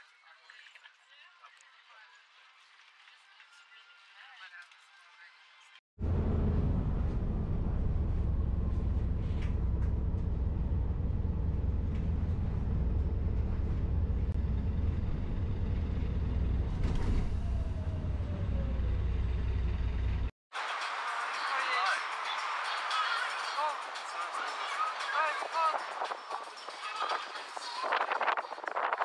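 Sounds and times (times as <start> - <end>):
traffic rumble: 6.0 - 20.3
vehicle passing: 6.0 - 20.3.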